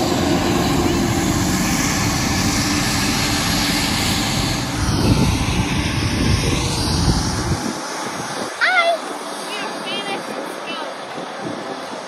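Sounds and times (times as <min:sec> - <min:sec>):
jet engines running: 0:00.0 - 0:12.0.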